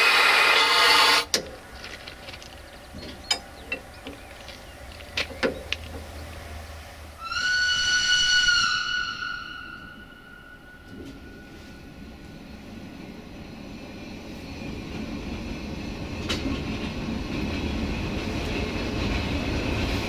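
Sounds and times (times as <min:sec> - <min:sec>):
diesel locomotive horn: 0:07.2 - 0:11.7.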